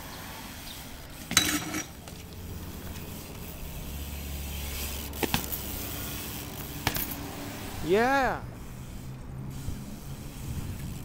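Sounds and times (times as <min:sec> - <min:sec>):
bike landing metallic clank: 0:01.3 - 0:02.0.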